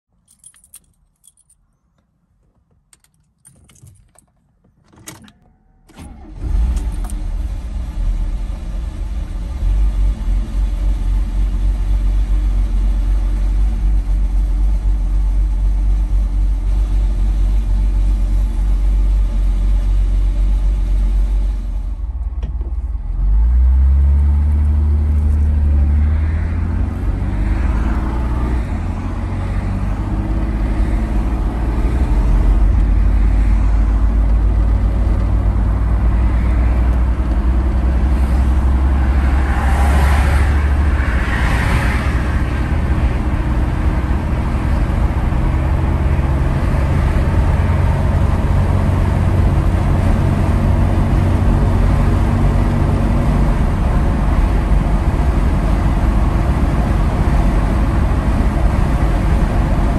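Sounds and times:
car keys clicking and jingling: 0:00.3 - 0:01.6, 0:02.8 - 0:05.5
car engine starting and idling: 0:02.3 - 0:59.9.

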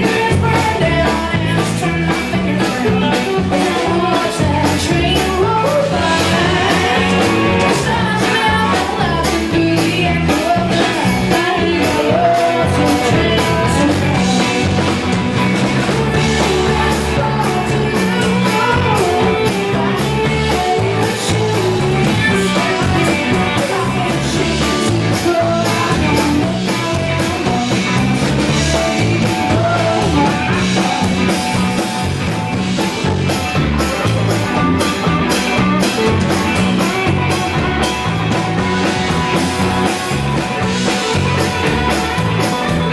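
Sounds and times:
woman singing: 0:00.0 - 0:31.1
bass guitar: 0:00.0 - 0:42.9
drum kit beat: 0:00.0 - 0:42.9
electric and acoustic guitars: 0:00.0 - 0:42.9.

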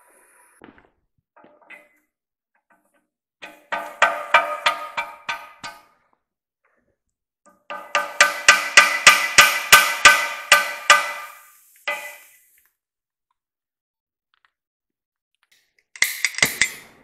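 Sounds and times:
hammer striking metal: 0:03.4 - 0:05.9, 0:07.6 - 0:12.3.

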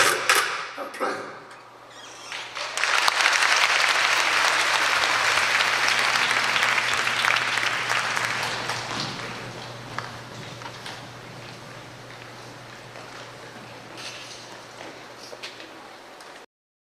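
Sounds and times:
audience applauding: 0:02.2 - 0:13.5.

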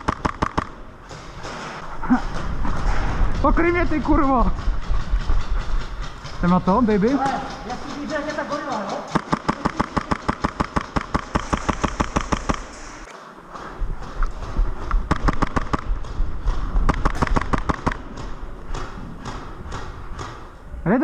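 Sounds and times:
airsoft gun firing: 0:00.0 - 0:00.9, 0:09.1 - 0:12.8, 0:15.1 - 0:16.1, 0:16.9 - 0:20.3.

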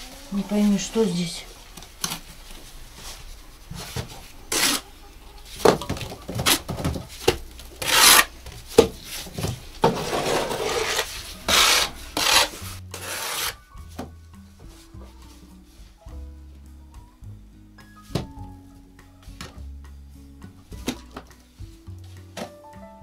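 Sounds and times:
trowel scraping mortar on wall: 0:04.5 - 0:04.9, 0:07.8 - 0:08.4, 0:09.8 - 0:13.6.

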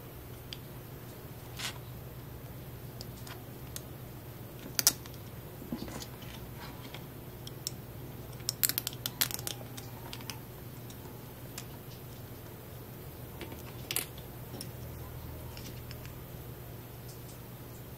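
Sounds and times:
steady low hum: 0:00.0 - 0:17.9
plastic parts clicking: 0:04.6 - 0:05.2, 0:06.8 - 0:11.0.

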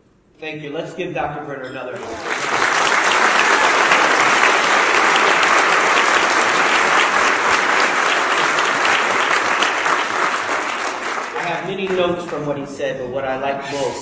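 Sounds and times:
large audience applauding: 0:02.0 - 0:12.6.

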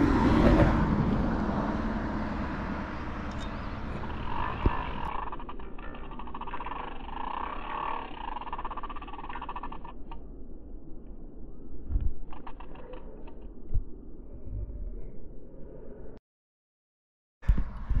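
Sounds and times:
fast run of fine clicks: 0:03.3 - 0:10.2, 0:12.0 - 0:13.5.

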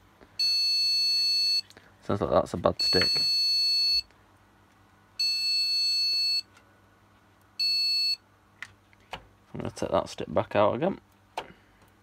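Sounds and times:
long high-pitched computer beeps: 0:02.8 - 0:04.1, 0:05.2 - 0:06.5, 0:07.6 - 0:08.2.

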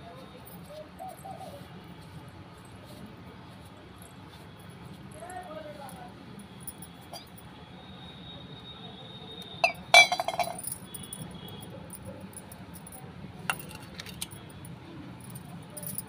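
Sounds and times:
metal vessels clinking: 0:09.6 - 0:11.2, 0:13.5 - 0:14.4
ringing metal clatter: 0:09.6 - 0:11.2.

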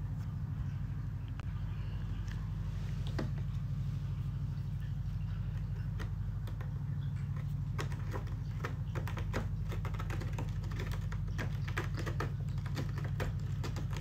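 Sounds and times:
steady low hum: 0:00.0 - 0:14.0
cat scratching cardboard: 0:05.5 - 0:14.0.

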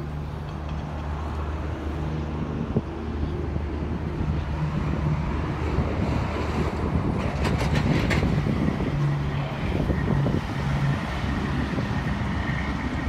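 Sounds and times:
vehicle engine hum: 0:00.0 - 0:13.0
wind buffeting the microphone: 0:02.3 - 0:13.0.

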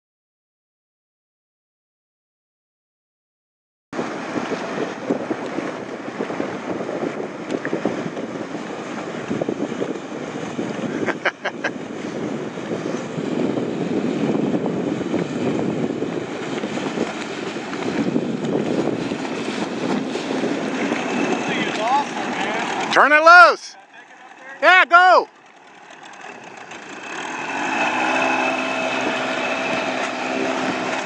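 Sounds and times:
wind noise on microphone: 0:04.0 - 0:22.9, 0:27.4 - 0:31.0
outboard motor running: 0:04.0 - 0:31.0.

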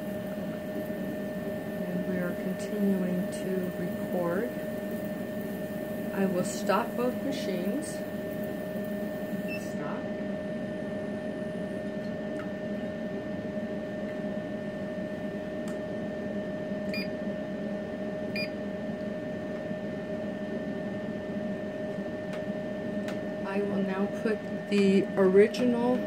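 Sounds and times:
electrical hum with high whine: 0:00.0 - 0:26.0.

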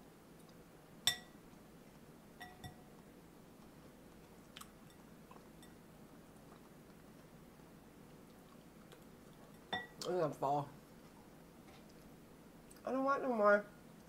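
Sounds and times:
fork clinking against glass bowl: 0:01.1 - 0:01.4, 0:02.4 - 0:02.8, 0:05.6 - 0:05.8.

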